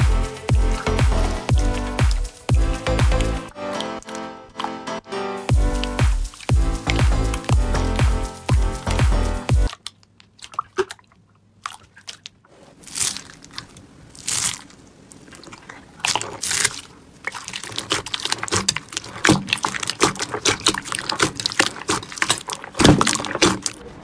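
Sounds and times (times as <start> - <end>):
slime with foam beads crackling: 12.7 - 23.8.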